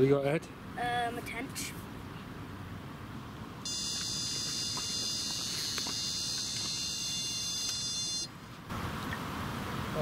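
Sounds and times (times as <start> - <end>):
bite alarm high-pitched tone: 3.7 - 8.3.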